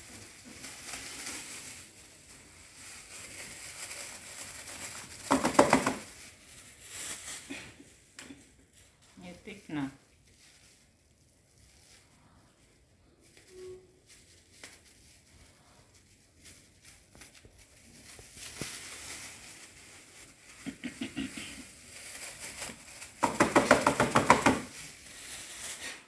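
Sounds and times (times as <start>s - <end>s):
plastic bag crinkling: 0.0s - 26.0s
powder pattering into bowl: 5.1s - 6.2s.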